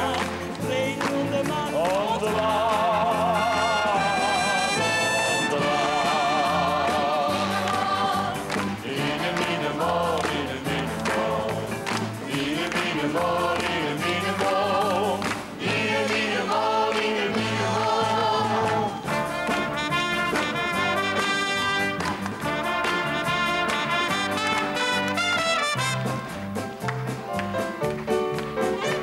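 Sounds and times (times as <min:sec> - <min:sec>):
orchestral music with brass: 0:00.0 - 0:29.0
choir holding long notes: 0:02.9 - 0:19.3.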